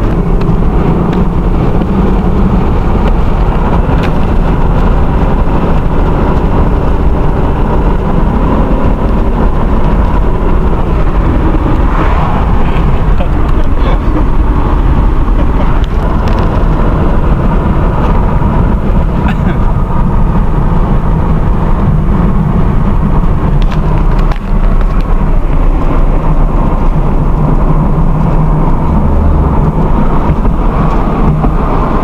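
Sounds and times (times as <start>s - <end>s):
car engine and tyre drone: 0.0s - 32.0s.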